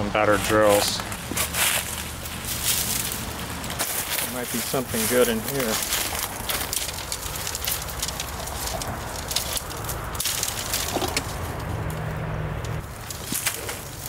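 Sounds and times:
dry brush crackling and snapping: 0.3s - 14.0s.

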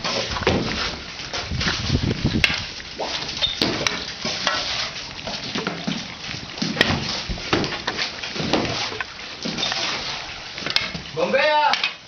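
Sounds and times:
shovels scraping wet mud: 0.0s - 12.0s.

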